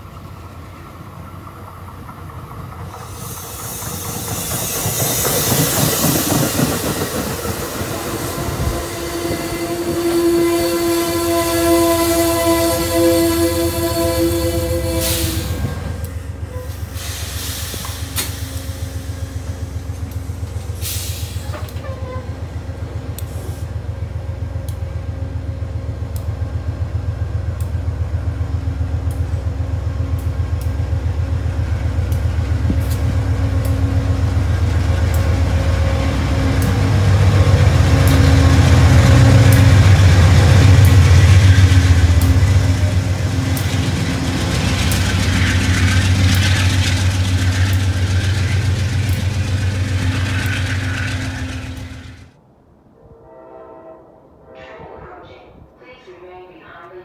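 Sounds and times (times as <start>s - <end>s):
diesel locomotive engine rumble: 0.0s - 52.5s.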